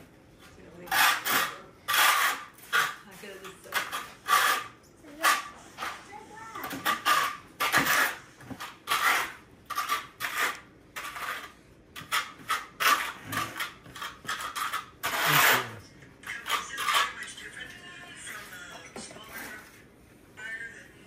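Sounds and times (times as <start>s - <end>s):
trowel scraping mortar on tile: 0.8s - 17.4s.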